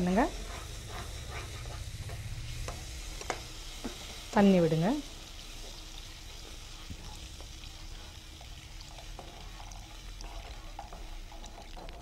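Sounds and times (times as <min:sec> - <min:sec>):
spatula scraping a pan: 0:00.0 - 0:04.4, 0:05.4 - 0:12.0
masala sizzling in a pan: 0:00.0 - 0:12.0.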